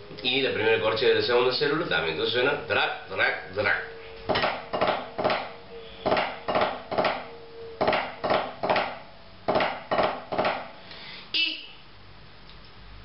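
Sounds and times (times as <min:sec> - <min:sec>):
drumsticks on practice pad: 0:04.2 - 0:10.8.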